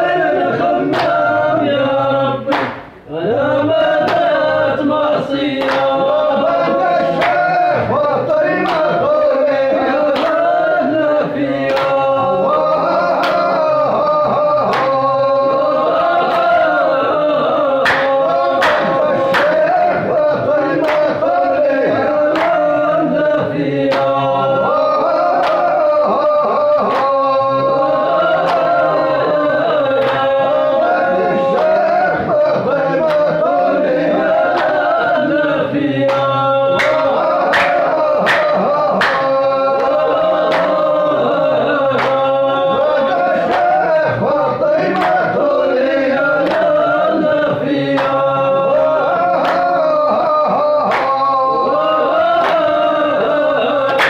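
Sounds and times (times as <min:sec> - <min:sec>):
men chanting together: 0:00.0 - 0:54.0
sharp handclaps: 0:00.8 - 0:01.4, 0:02.5 - 0:03.0, 0:04.0 - 0:04.4, 0:05.4 - 0:09.3, 0:10.0 - 0:12.3, 0:13.1 - 0:15.4, 0:16.1 - 0:16.8, 0:17.7 - 0:20.0, 0:20.7 - 0:22.8, 0:23.8 - 0:24.3, 0:25.2 - 0:30.4, 0:31.4 - 0:31.9, 0:33.0 - 0:33.5, 0:34.4 - 0:35.2, 0:36.0 - 0:41.1, 0:41.8 - 0:53.1, 0:53.8 - 0:54.0.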